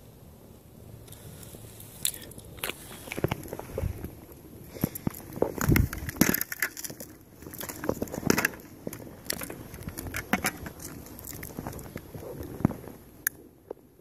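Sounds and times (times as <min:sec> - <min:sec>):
helmet knocking and scraping on paving: 0:04.8 - 0:12.8.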